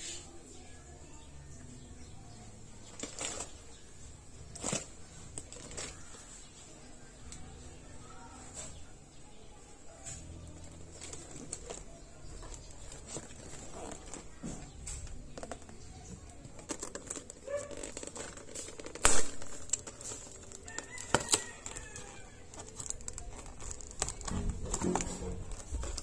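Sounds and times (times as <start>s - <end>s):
cardboard box handled: 10.6s - 15.8s
paper tearing: 16.8s - 26.0s.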